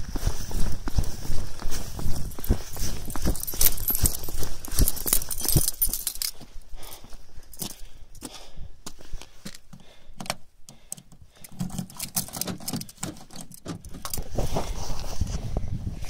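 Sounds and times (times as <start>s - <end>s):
jacket rustling: 2.0s - 7.0s
keys jangling: 2.2s - 7.8s, 11.4s - 14.3s.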